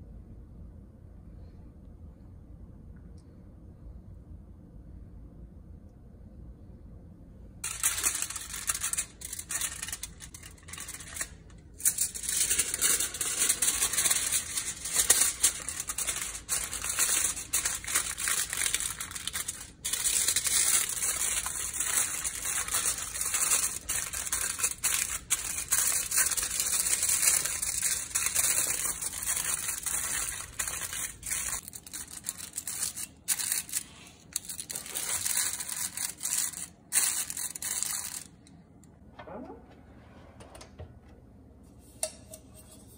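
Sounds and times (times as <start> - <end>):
aluminium foil crinkling: 7.6 - 38.4.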